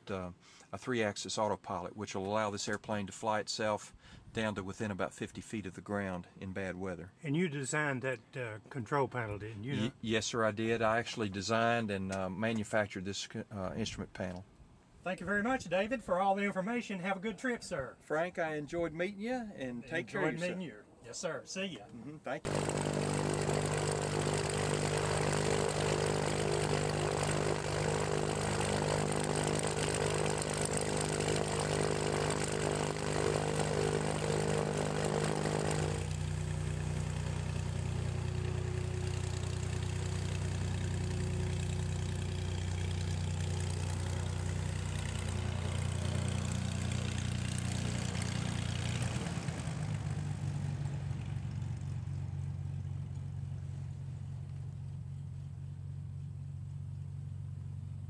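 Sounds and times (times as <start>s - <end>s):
propeller plane engine droning: 22.4s - 58.0s.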